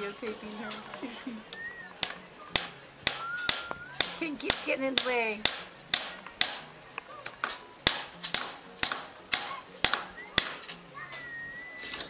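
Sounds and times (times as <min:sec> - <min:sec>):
thin whistle-like tone: 0:01.5 - 0:04.3, 0:06.5 - 0:07.2, 0:08.0 - 0:12.0
sharp knocks: 0:02.0 - 0:06.8, 0:07.4 - 0:10.7.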